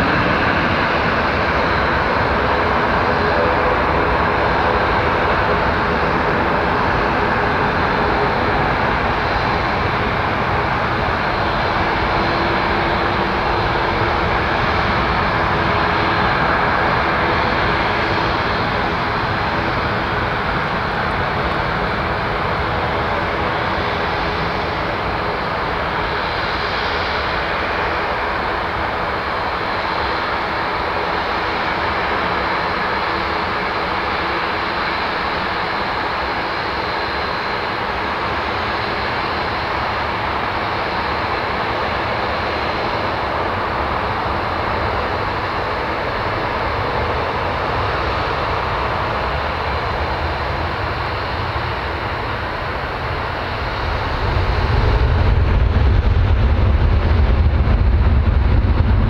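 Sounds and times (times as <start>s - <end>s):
jet engines rumbling at idle: 0.0s - 59.0s.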